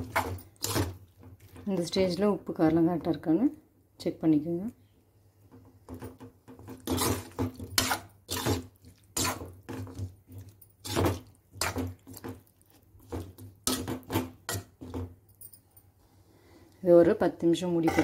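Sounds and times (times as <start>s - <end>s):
metal spoon scraping a pan: 0.0s - 1.0s, 6.6s - 15.0s, 17.8s - 18.0s.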